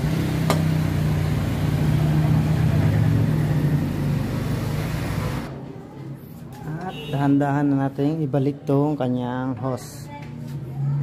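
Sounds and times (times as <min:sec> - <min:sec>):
vehicle engine running: 0:00.0 - 0:05.5.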